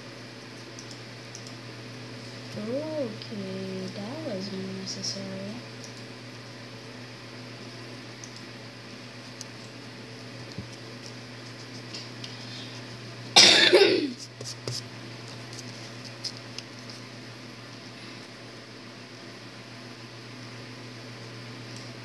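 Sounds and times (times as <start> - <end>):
steady low hum: 0.0 - 22.0
person coughing: 13.4 - 14.2.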